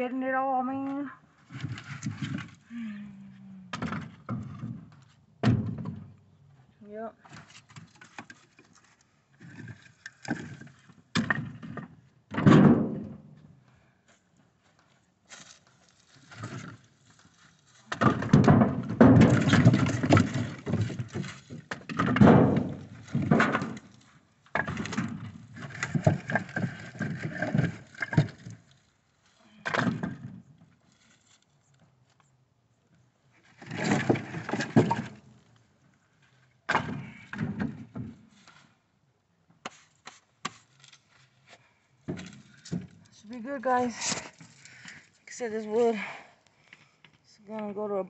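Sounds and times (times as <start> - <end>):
logs clattering into truck bed: 3.7 - 6.1, 9.4 - 13.4, 17.9 - 28.8, 29.6 - 31.1, 33.5 - 35.5, 36.6 - 38.7, 42.0 - 44.6.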